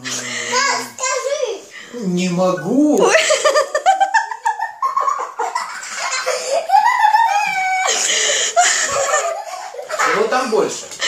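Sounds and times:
children giggling: 3.1s - 11.0s.

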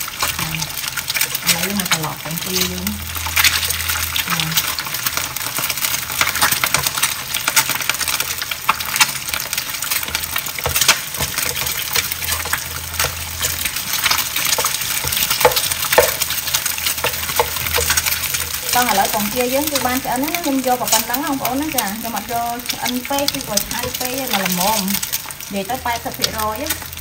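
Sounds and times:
eggs sizzling in oil: 0.0s - 27.0s
spatula scraping a pan: 9.0s - 19.2s.

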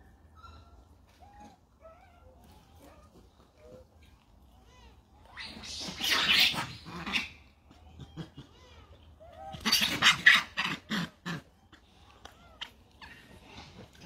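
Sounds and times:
monkeys screaming: 5.2s - 12.0s.

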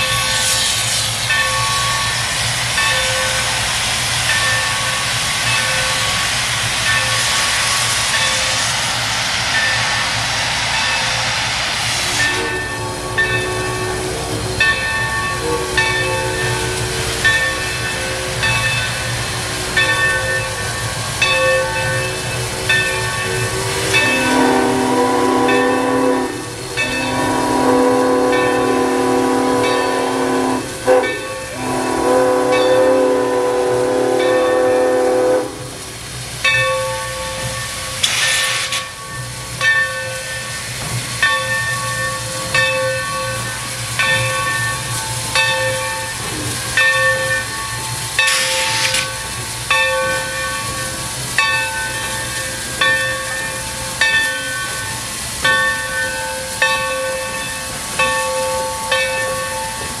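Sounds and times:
steam hiss: 0.0s - 60.0s
steam locomotive whistle: 11.9s - 35.8s.

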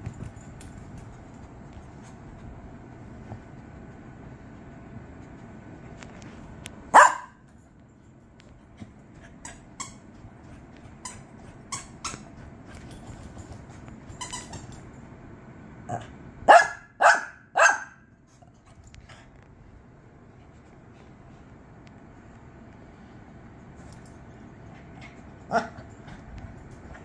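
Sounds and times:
small dog barking: 6.9s - 7.4s, 15.9s - 18.0s.

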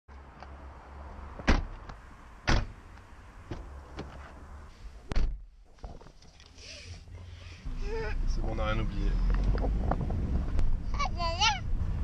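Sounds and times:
car doors thudding shut: 1.4s - 1.8s, 2.4s - 2.8s, 5.1s - 5.5s.

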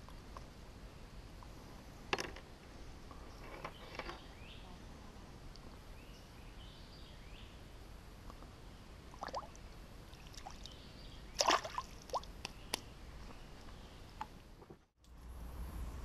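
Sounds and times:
water splashing: 9.1s - 10.8s, 11.4s - 12.4s.

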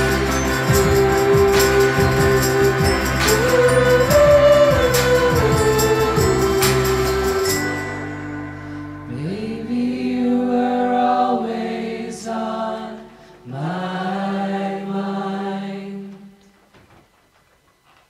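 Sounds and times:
voices singing long held notes: 0.0s - 8.1s, 9.1s - 16.4s
band playing: 0.0s - 8.5s.

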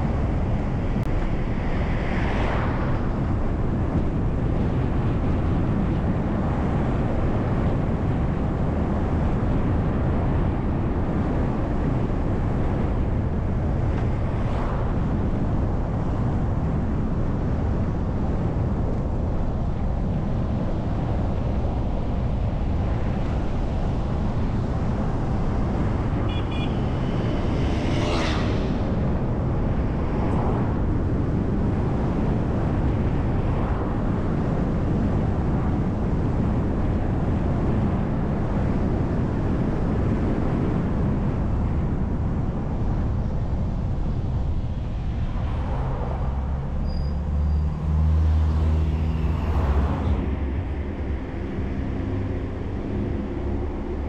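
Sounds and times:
bus engine and tyres rumbling: 0.0s - 54.0s.

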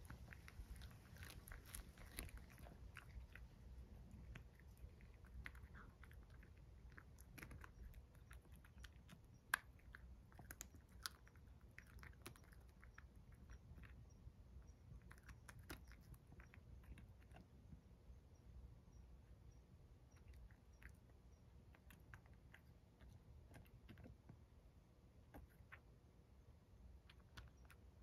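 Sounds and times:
cat chewing crunchy fish: 0.0s - 17.8s, 20.1s - 24.3s.

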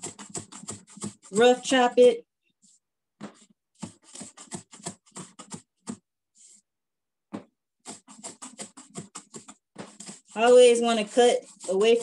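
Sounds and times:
knife chopping on cutting board: 0.0s - 1.4s, 3.2s - 6.0s, 7.4s - 12.0s.

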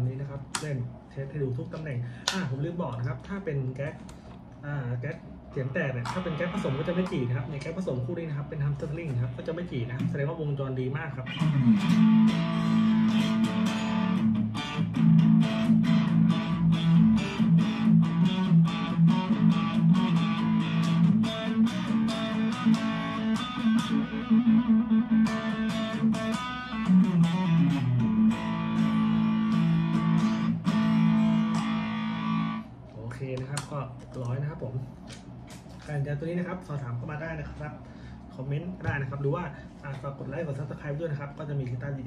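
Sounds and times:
distorted electric guitar riffs: 5.6s - 8.4s, 11.2s - 32.8s.

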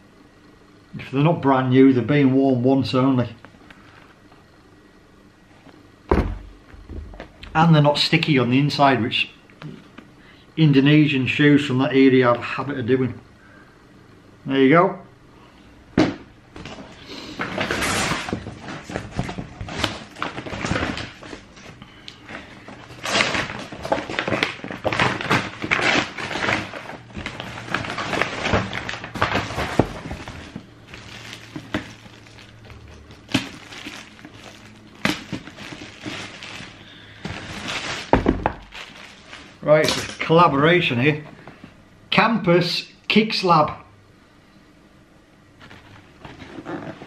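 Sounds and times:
cardboard box knocks and thuds: 6.1s - 7.2s, 38.1s - 38.7s
paper wrapping rustling: 16.6s - 40.3s.

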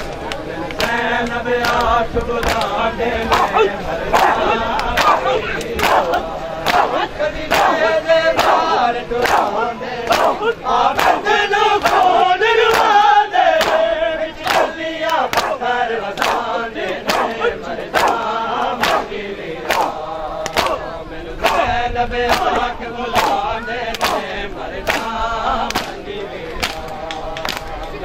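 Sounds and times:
men chanting in unison: 0.0s - 28.0s
chest-beating slaps: 1.6s - 2.7s, 4.2s - 7.8s, 9.2s - 12.1s, 13.6s - 15.6s, 16.2s - 20.8s, 22.3s - 24.3s, 25.7s - 27.7s.

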